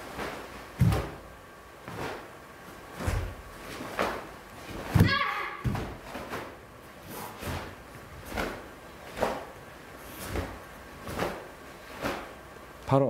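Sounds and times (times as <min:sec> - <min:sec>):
uniform swishing snaps: 0:00.0 - 0:01.2, 0:01.8 - 0:02.3, 0:02.9 - 0:12.4
bare feet stamping on mat: 0:00.2 - 0:01.2, 0:03.0 - 0:06.6.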